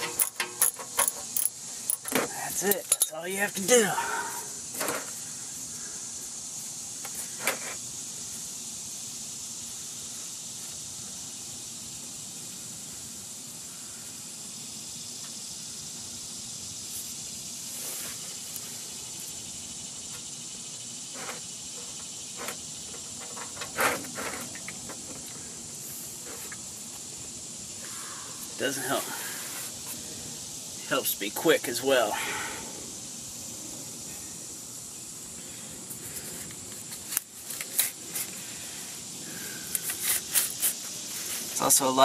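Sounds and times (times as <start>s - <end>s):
handling clicks and knocks: 0.0s - 3.2s.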